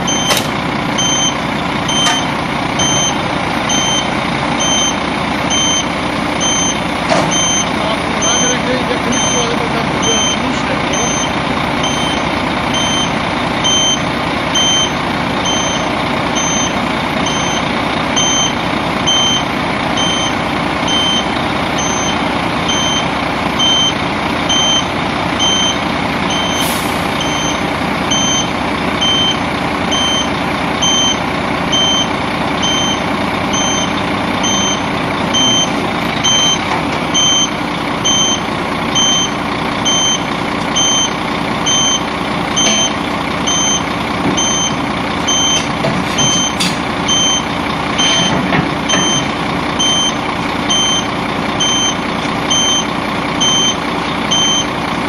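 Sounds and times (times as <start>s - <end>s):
truck engine running: 0.0s - 55.0s
short high warning beeps: 1.0s - 14.0s, 18.2s - 29.4s, 41.7s - 48.3s.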